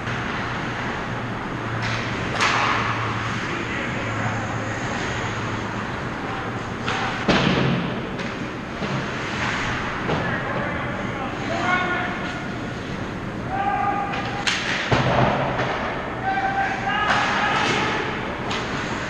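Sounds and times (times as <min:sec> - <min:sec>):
low arena hum: 0:00.0 - 0:19.0
sharp crack of hockey stick: 0:14.4 - 0:15.1.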